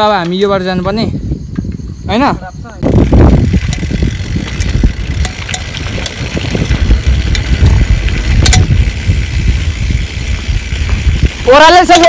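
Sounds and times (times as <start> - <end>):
wind rumbling on microphone: 0.0 - 12.0
bike clicks and knocks: 2.8 - 12.0.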